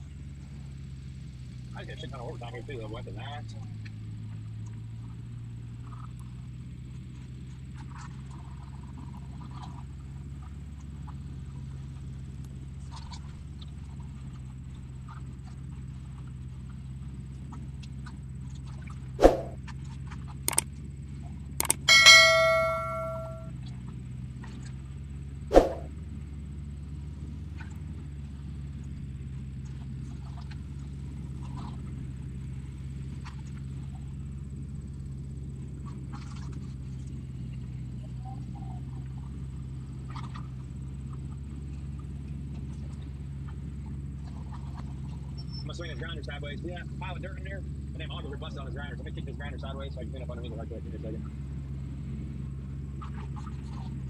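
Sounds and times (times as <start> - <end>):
diesel machinery drone: 25.0 - 54.0.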